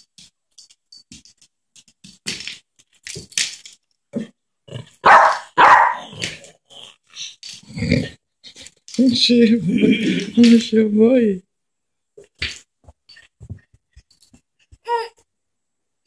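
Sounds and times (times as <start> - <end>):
small dog barking: 5.0 - 6.1.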